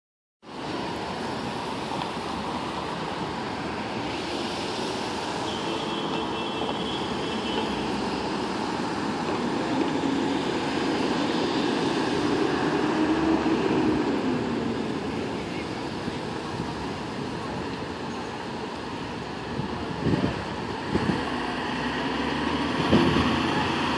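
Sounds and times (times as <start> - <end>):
passing cars and idling engines: 0.5 - 23.9
heavier engine approaching: 6.7 - 23.9.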